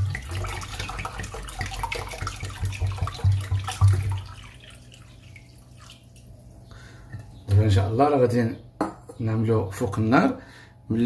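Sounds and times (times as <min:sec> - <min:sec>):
water pouring into pot: 0:00.0 - 0:06.3.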